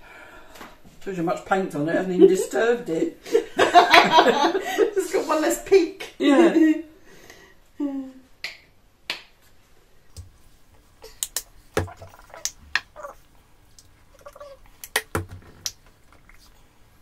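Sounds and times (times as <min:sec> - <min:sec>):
paint tubes clicking and knocking: 0:10.1 - 0:16.6
paint squelching from tube: 0:10.2 - 0:16.7.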